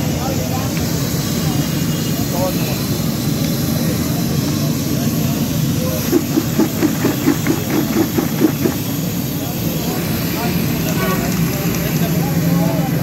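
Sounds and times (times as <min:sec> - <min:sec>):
chips shaken in plastic bucket: 0:06.1 - 0:08.8.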